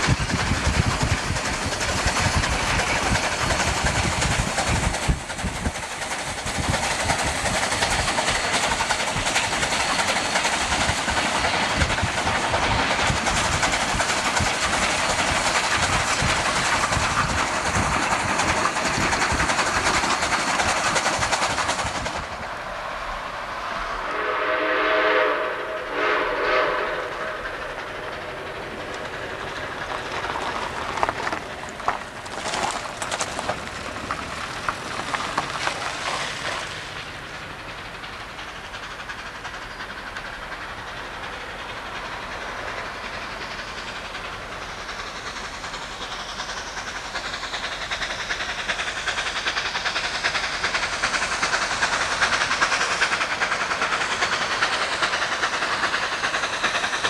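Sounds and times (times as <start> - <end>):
train wheels clattering on rail: 0.0 - 24.4, 25.0 - 57.0
steam locomotive chime whistle: 24.0 - 27.6.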